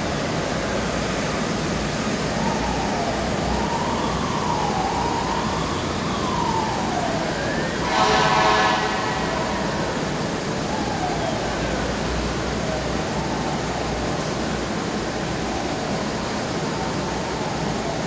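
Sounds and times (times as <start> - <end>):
steady background rush: 0.0 - 18.0
distant siren wailing: 1.0 - 18.0
horn blast: 7.8 - 10.0.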